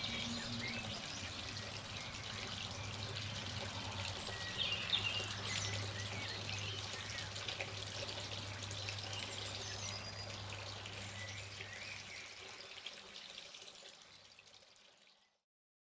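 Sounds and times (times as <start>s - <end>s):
birds chirping: 0.0s - 12.8s
low steady hum: 0.0s - 12.8s
water dripping and trickling: 0.0s - 15.4s.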